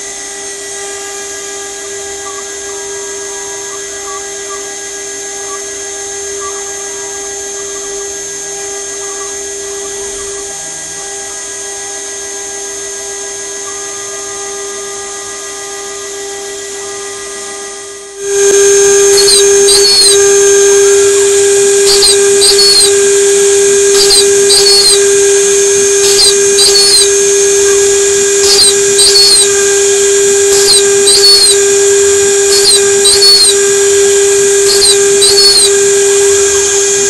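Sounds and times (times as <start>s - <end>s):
router spindle high whine: 0.0s - 37.0s
stepper motor chirps: 2.0s - 12.0s, 18.2s - 37.0s.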